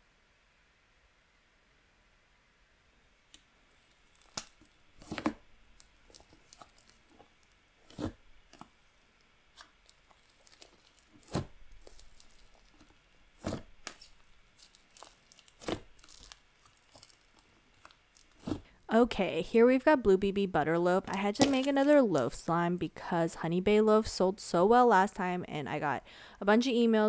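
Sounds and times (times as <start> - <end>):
slime crackling: 3.7 - 8.8, 9.5 - 18.7, 21.0 - 22.4
air pockets popping: 10.5 - 14.2, 18.3 - 18.7.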